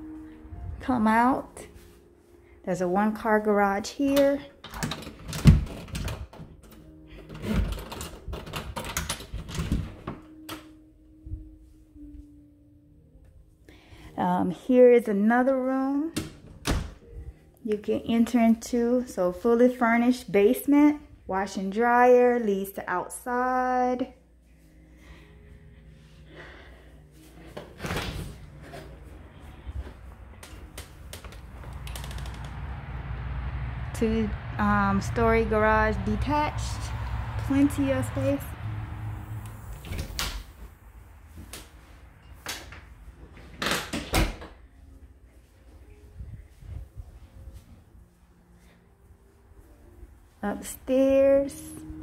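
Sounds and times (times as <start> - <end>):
door rattle: 4.7 - 10.2
door handle and latch clicks: 4.7 - 10.7
low rumble: 28.2 - 43.5, 44.7 - 52.0.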